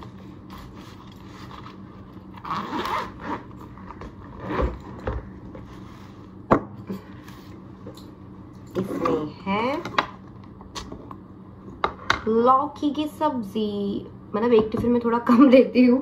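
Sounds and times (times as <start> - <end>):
zipper pulled open: 0.9 - 5.0.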